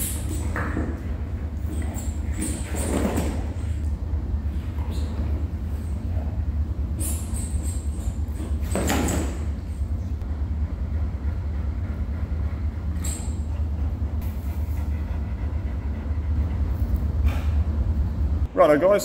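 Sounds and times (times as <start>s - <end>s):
steady low rumble: 3.4s - 7.0s, 9.5s - 18.6s.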